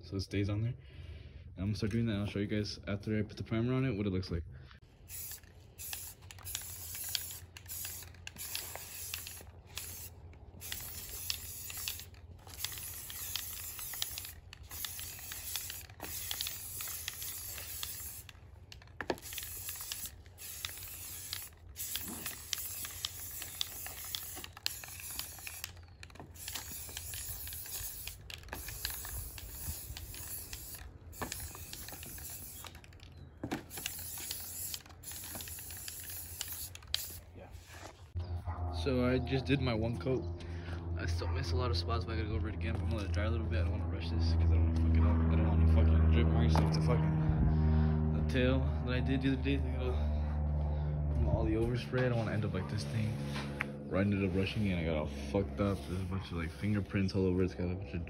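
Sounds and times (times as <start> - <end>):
aerosol can spraying: 5.1 - 37.2.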